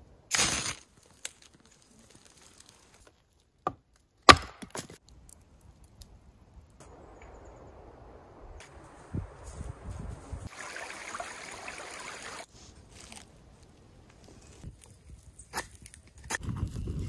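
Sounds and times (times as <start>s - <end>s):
wood cracking: 0.6s - 6.8s
wood chopping knocks: 3.7s - 4.9s
faint outdoor hiss: 5.0s - 15.6s.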